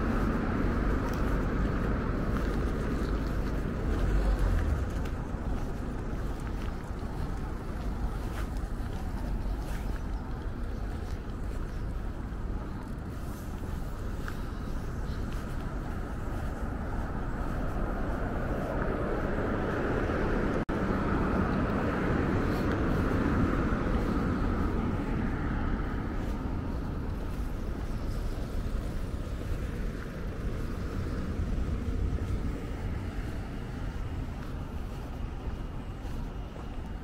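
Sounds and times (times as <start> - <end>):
road traffic passing: 0.0 - 37.0.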